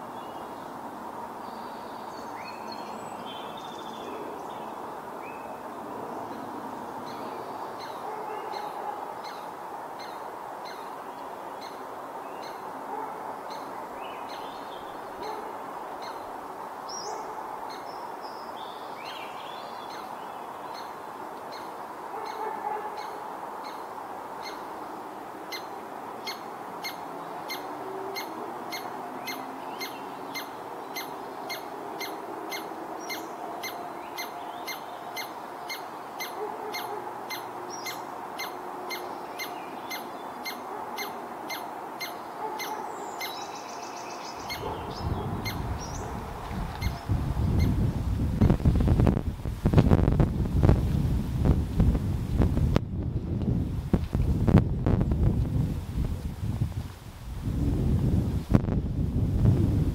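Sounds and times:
birds chirping: 25.5s - 48.5s
wind buffeting microphone: 44.4s - 59.9s.

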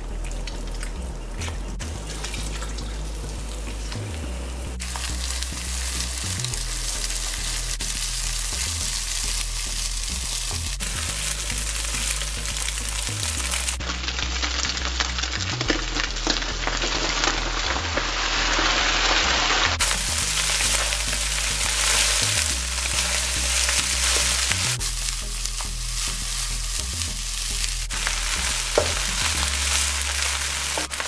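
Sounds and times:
rice sizzling in a wok: 4.8s - 31.0s
spatula scraping a pan: 18.4s - 31.0s.

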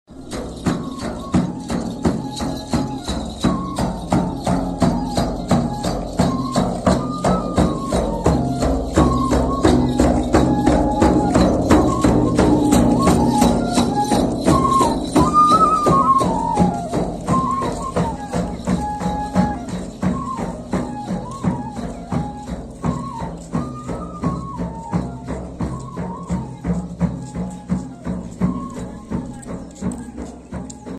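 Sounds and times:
flutes playing melody: 0.1s - 30.9s
frame drums beating: 0.1s - 30.9s.

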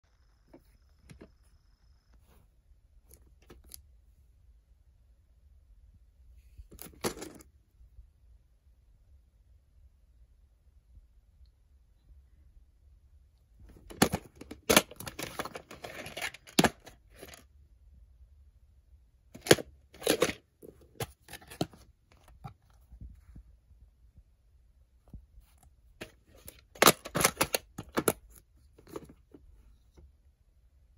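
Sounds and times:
plastic case clicks and snaps: 26.0s - 29.1s.

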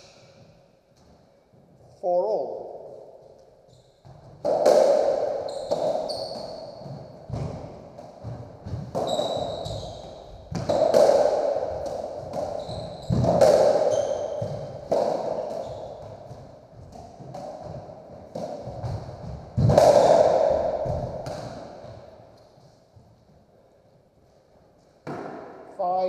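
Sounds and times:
ball hitting racquets and walls: 3.3s - 23.5s, 24.8s - 25.7s
trainers squeaking on wooden floor: 9.0s - 10.5s, 12.5s - 14.8s.

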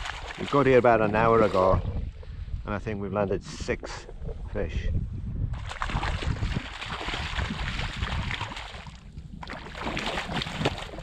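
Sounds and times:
fish splashing in water: 5.6s - 11.0s.

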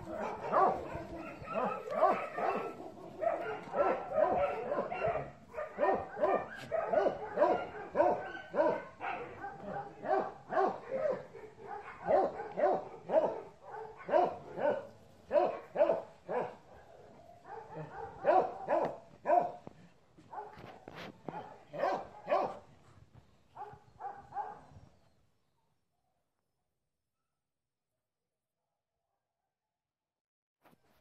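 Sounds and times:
dog barking: 0.0s - 19.6s, 20.2s - 22.7s, 23.6s - 24.8s.

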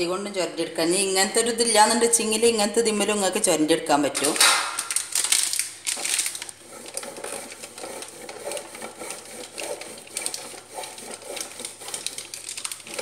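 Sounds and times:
chocolate scraping on grater: 6.5s - 13.0s.

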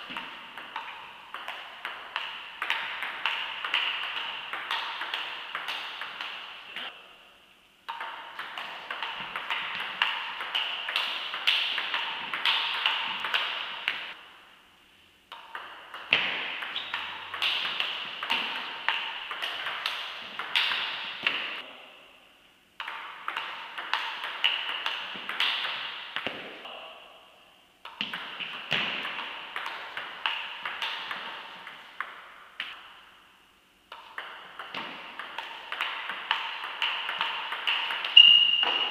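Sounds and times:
table tennis ball clicking: 7.9s - 14.0s, 22.8s - 25.9s, 27.8s - 32.7s, 33.9s - 38.8s.

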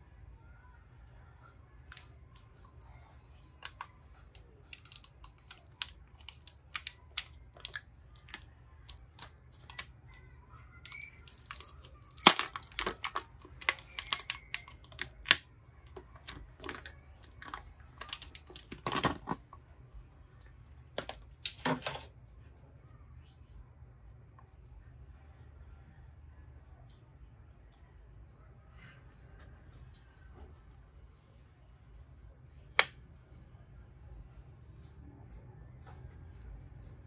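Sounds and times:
plastic film peeling crinkles: 3.6s - 9.9s, 10.8s - 19.4s, 21.0s - 22.1s.

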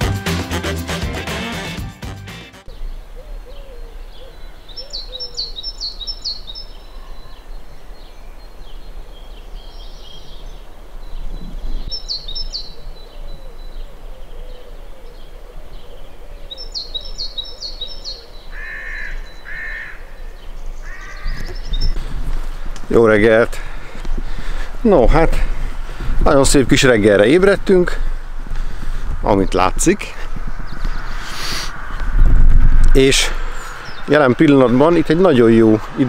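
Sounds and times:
small bird singing: 2.7s - 22.2s, 33.5s - 35.4s
harsh caws: 18.5s - 20.2s, 20.8s - 21.6s.

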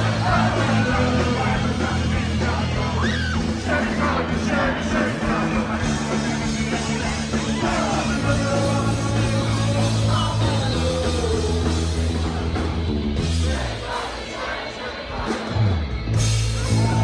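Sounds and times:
man singing: 0.0s - 12.6s
rock band playing live: 0.0s - 17.0s.

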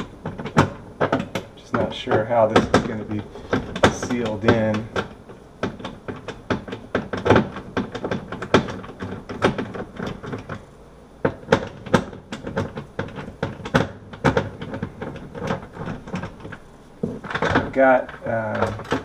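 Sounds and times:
screwdriver clicks and knocks: 0.0s - 10.6s.

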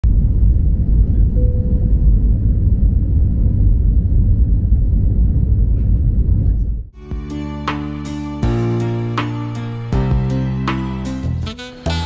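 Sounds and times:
jet engine rumble: 0.0s - 7.0s.

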